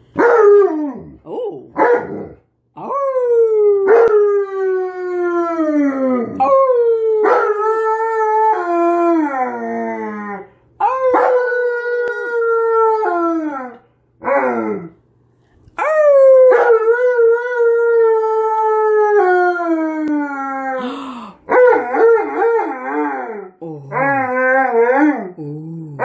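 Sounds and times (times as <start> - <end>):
dog howling: 2.8 - 14.9, 21.5 - 25.4.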